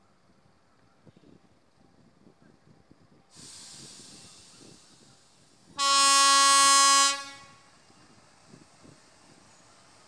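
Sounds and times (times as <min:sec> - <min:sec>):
diesel train hiss: 0:03.3 - 0:10.0
locomotive horn blast: 0:05.8 - 0:07.7.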